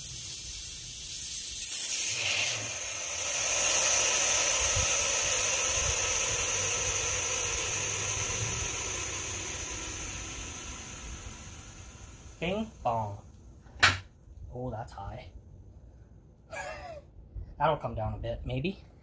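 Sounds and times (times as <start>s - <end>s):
compressed air hissing: 0.0s - 13.4s.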